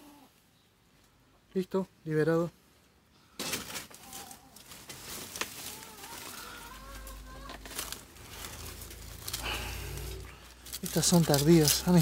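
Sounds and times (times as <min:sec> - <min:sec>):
dry leaves crackling: 0:03.4 - 0:12.0
chicken calling: 0:05.5 - 0:10.6.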